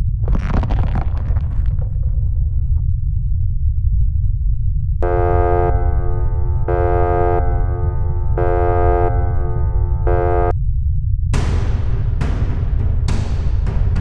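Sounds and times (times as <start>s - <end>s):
deep rumble: 0.0s - 14.0s
electronic synthesized tone: 5.0s - 10.5s.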